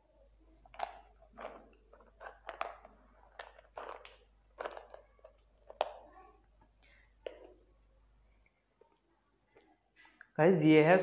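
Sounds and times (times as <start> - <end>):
plastic bottle crinkling: 0.5 - 7.7.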